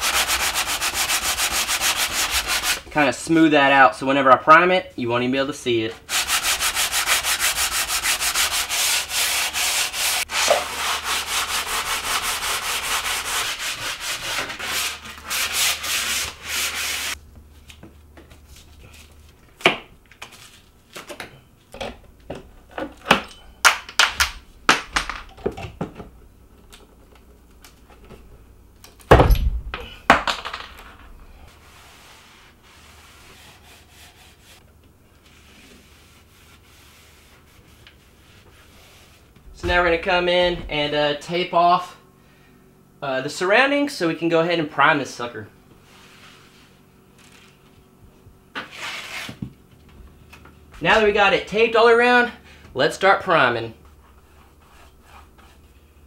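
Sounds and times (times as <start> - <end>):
sandpaper rubbing on wood: 0.0 - 2.8, 6.1 - 17.2, 31.6 - 34.6, 35.3 - 39.9
heavy thump: 29.1 - 30.3, 39.4 - 41.0.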